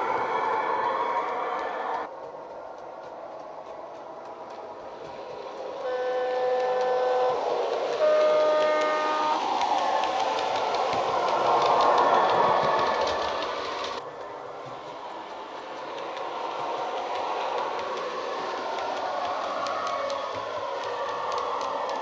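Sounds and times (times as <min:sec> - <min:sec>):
electric train running sound: 0:00.0 - 0:22.0
two-tone train horn: 0:05.8 - 0:10.2.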